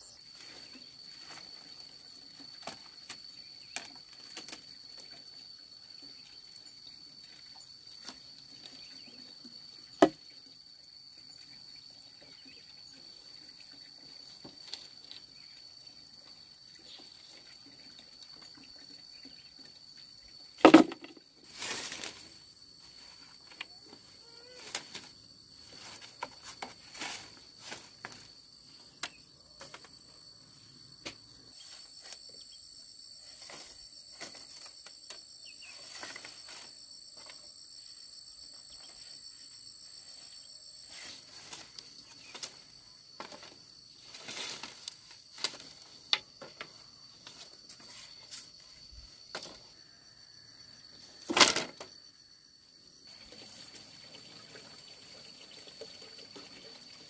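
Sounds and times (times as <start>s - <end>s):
insects droning: 0.0s - 57.0s
bamboo poles knocking: 10.0s - 10.2s, 20.6s - 21.2s.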